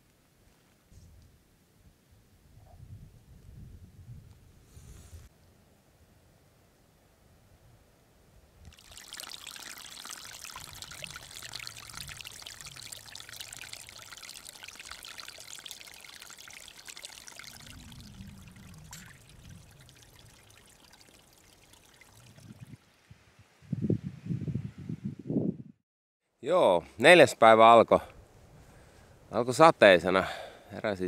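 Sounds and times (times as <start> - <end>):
water running and splashing: 8.7 - 23.1.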